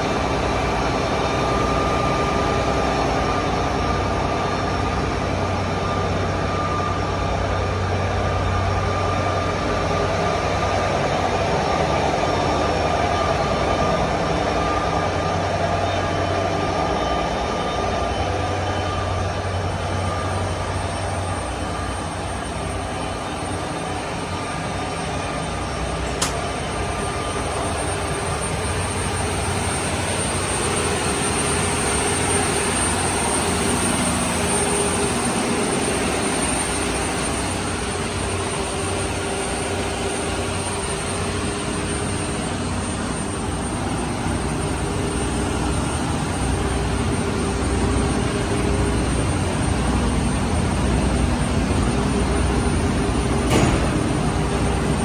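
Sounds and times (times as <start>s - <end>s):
diesel machinery droning: 0.0s - 55.0s
sharp click: 26.2s - 26.4s.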